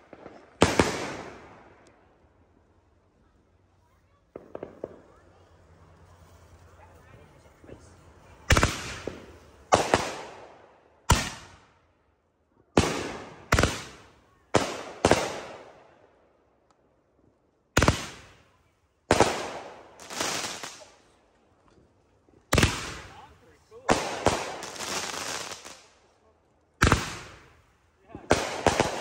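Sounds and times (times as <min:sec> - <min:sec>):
fireworks bangs: 0:00.0 - 0:01.8, 0:04.2 - 0:06.6, 0:07.5 - 0:11.8, 0:12.7 - 0:15.9, 0:17.8 - 0:21.0, 0:22.5 - 0:26.0, 0:26.8 - 0:29.0.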